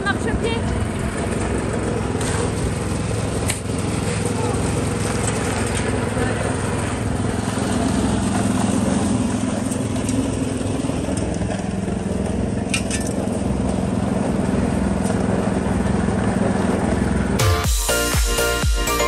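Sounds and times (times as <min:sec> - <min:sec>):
cement mixer humming: 0:00.0 - 0:19.0
wet concrete sliding: 0:01.6 - 0:13.2.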